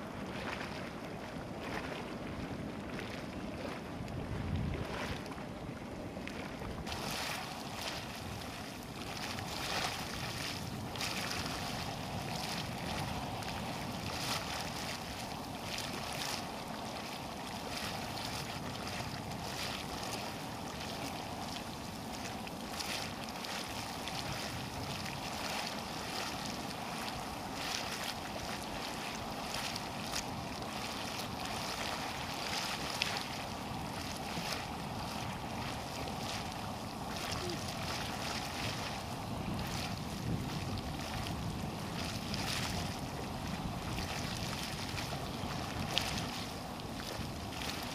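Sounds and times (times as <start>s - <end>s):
wind gusts buffeting microphone: 34.4s - 46.5s.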